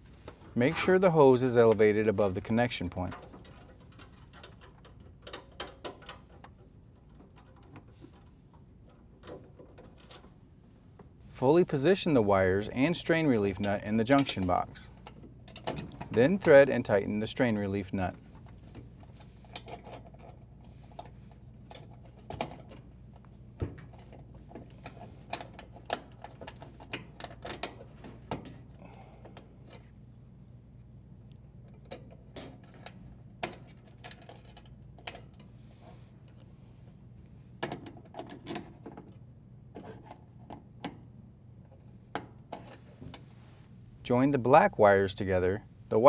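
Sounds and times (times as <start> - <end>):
metal and wire clicking and rubbing: 2.9 - 10.4, 12.6 - 17.0, 17.8 - 28.7, 31.3 - 36.4.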